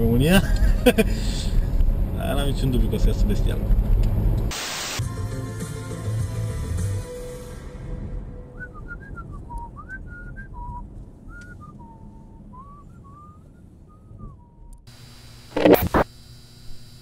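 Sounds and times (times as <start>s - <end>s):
car cabin road noise: 0.0s - 4.5s, 8.7s - 14.9s
man whistling a tune: 8.4s - 14.8s.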